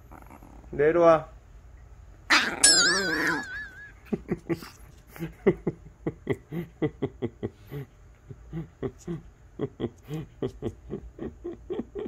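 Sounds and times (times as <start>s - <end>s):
small dog growling: 0.0s - 0.8s, 2.3s - 3.5s.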